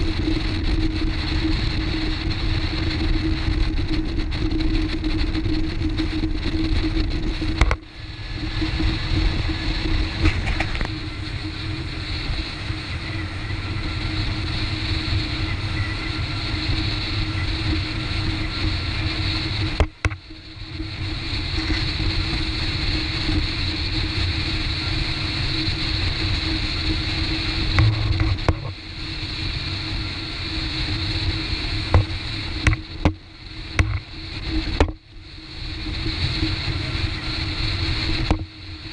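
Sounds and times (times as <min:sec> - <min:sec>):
motorboat engine droning: 0:00.0 - 0:38.9
wind rushing: 0:25.9 - 0:34.9
churning river water: 0:30.1 - 0:35.0.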